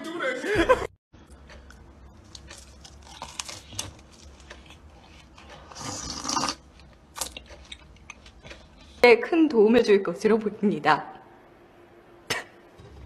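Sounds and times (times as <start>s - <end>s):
person chewing bread: 1.2s - 9.0s.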